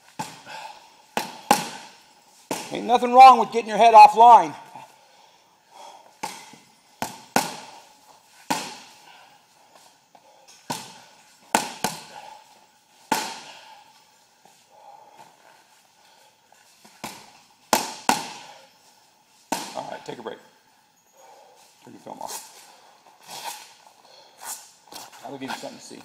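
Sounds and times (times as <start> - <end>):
punches hitting heavy bag: 1.2 - 2.8, 10.7 - 12.2, 13.1 - 13.6, 17.0 - 18.5.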